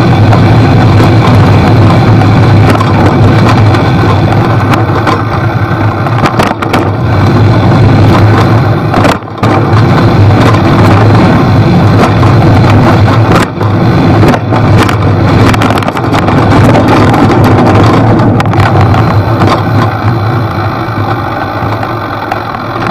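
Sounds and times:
bicycle tyres rumbling: 0.0s - 22.9s
wind rush over microphone: 0.0s - 22.9s
small knocks from bumpy trail: 1.9s - 7.0s, 8.1s - 11.1s.

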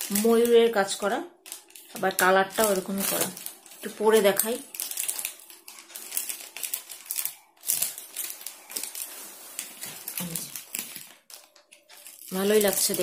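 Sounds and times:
plastic wrapping crinkling: 0.0s - 13.0s.

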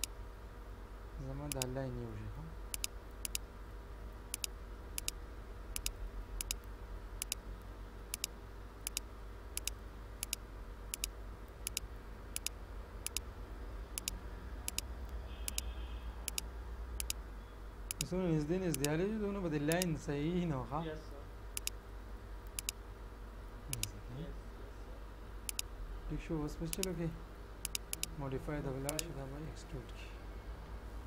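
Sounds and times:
low electrical hum: 0.0s - 31.0s
mouse button clicking: 1.5s - 1.7s, 4.3s - 5.2s, 7.2s - 7.4s, 8.1s - 8.3s, 9.6s - 11.8s, 12.4s - 13.2s, 14.0s - 15.7s, 16.3s - 17.2s, 18.7s - 18.9s, 22.5s - 22.8s, 26.7s - 26.9s, 28.9s - 29.1s.

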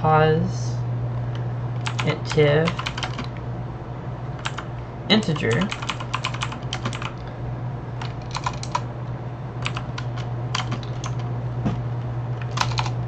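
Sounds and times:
low hum: 0.0s - 13.0s
computer keyboard typing: 1.8s - 3.4s, 4.4s - 7.2s, 8.0s - 8.9s, 9.6s - 11.2s, 12.4s - 13.0s.

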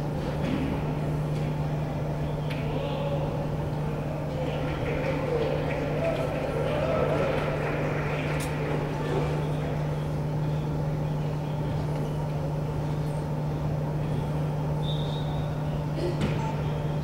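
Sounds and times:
constant low hum: 0.0s - 17.0s
faint voices: 1.6s - 14.6s.

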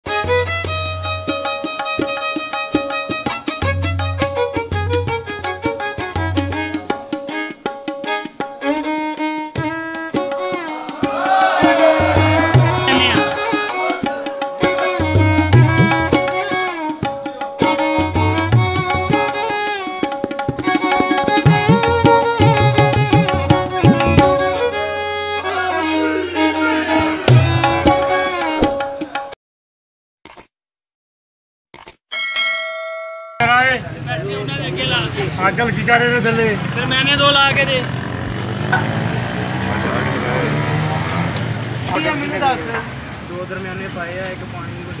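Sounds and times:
instrumental music with drums and violin: 0.0s - 29.4s.

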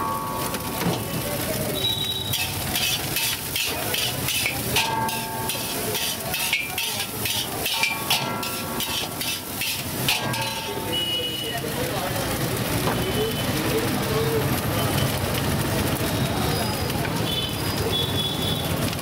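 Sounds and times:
frying sizzle: 0.0s - 19.0s
spatula scraping a pan: 2.2s - 11.1s.

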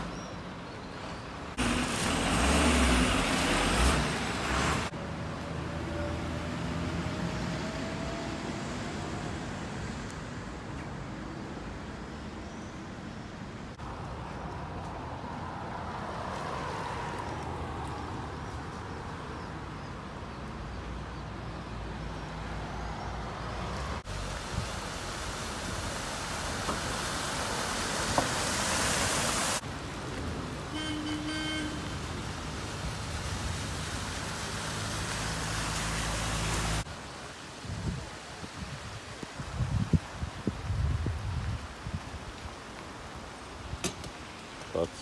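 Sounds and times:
traffic: 0.0s - 45.0s
rain on flooded roads: 1.0s - 12.4s, 22.4s - 45.0s
car spraying through floodwater: 1.6s - 4.9s, 24.0s - 38.6s
car horn toot: 30.7s - 32.1s.

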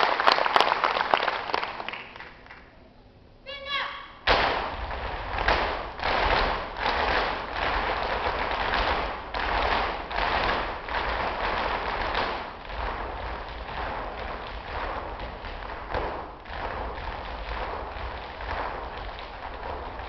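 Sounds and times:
dance shoes stamping on wooden stage: 4.3s - 20.0s.

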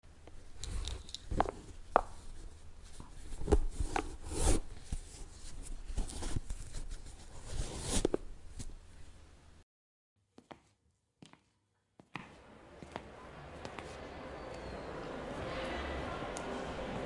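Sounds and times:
shoelaces rubbing swishes: 12.1s - 14.9s.

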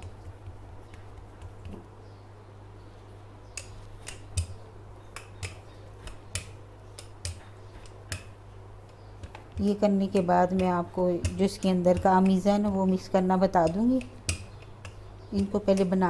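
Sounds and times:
rolling pin rolling dough: 0.0s - 1.9s, 3.6s - 16.0s
rolling pin clicking on counter: 3.5s - 16.0s.

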